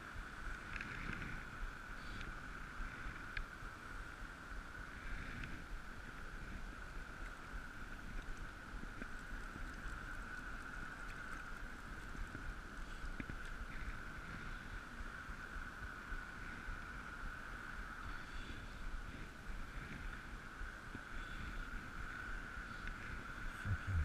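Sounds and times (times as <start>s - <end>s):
faint clicks: 0.4s - 2.4s, 6.6s - 14.4s, 22.8s - 23.3s
low rumble: 23.5s - 24.0s.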